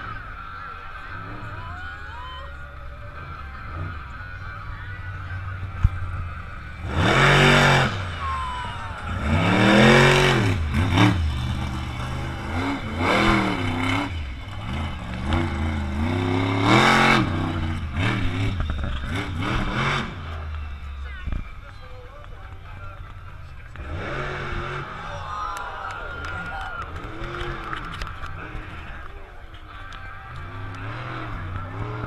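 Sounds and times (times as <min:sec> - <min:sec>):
truck engine revving: 0:00.0 - 0:32.0.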